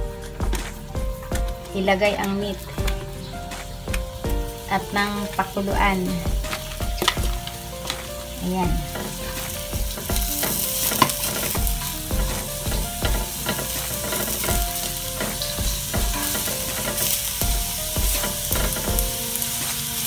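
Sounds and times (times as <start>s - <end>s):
food sizzling in wok: 0.0s - 20.0s
metal pan ringing: 0.0s - 20.0s
spatula scraping pan: 4.5s - 20.0s.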